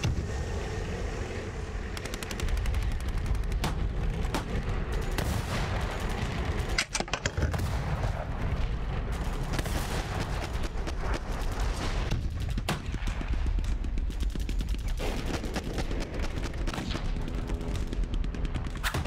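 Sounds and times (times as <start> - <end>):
fast sharp clicks: 1.8 - 4.5.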